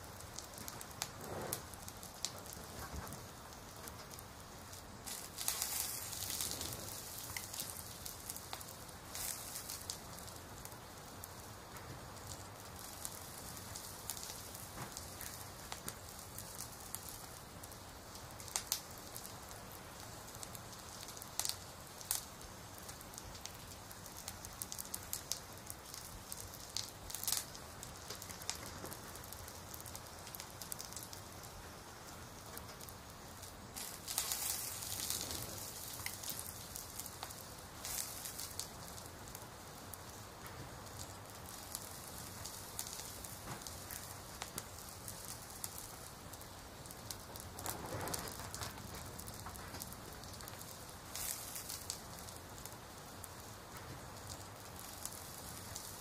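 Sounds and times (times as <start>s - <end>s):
crackling fire: 0.0s - 56.0s
fire pops: 0.0s - 56.0s
rain hiss: 0.0s - 56.0s
rustle: 0.4s - 4.3s, 32.6s - 56.0s.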